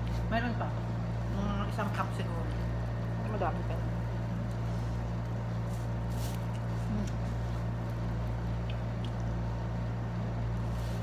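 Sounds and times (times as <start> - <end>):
air conditioner humming: 0.0 - 11.0
chewing rice: 2.5 - 11.0.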